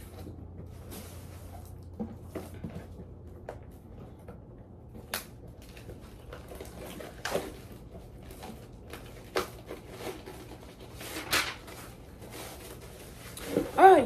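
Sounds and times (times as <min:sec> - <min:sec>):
paper rustling: 0:05.6 - 0:14.0.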